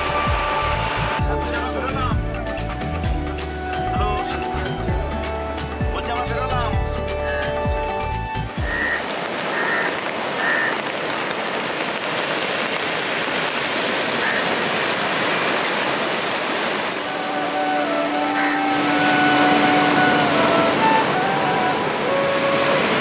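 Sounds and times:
heavy surf breaking: 8.6 - 23.0
held musical notes: 17.0 - 23.0.

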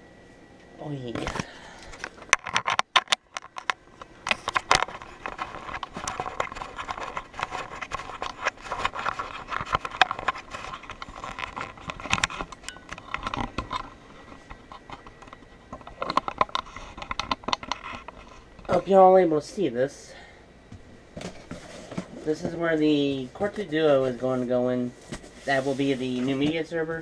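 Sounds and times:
small knocks and crackles: 1.1 - 19.1, 20.7 - 27.0.

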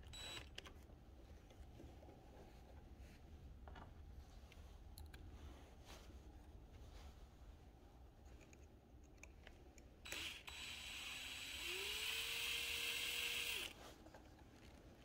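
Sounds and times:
electric screwdriver running: 10.1 - 13.8.

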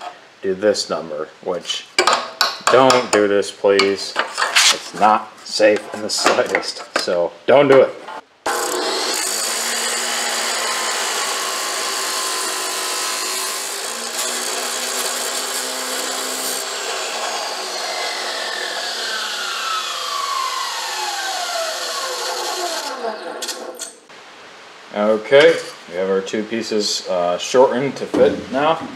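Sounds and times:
chop saw grinding through metal: 8.5 - 24.0
saw motor winding down: 13.6 - 24.0.

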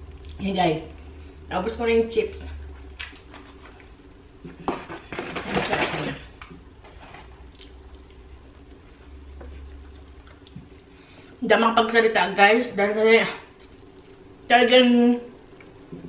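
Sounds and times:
low steady hum: 0.0 - 16.0
soft chewing: 6.9 - 11.3, 13.5 - 14.3.

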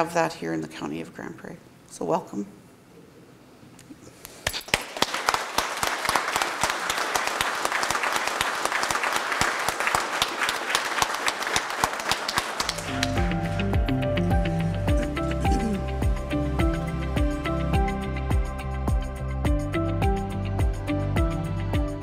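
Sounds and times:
room of people applauding: 4.3 - 13.8
background music with bass: 12.7 - 22.0.

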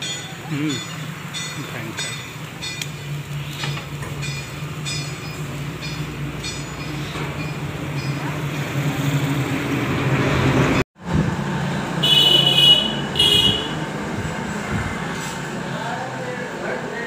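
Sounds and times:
road traffic engine hum: 0.0 - 17.0
vehicle horn: 12.0 - 13.9.

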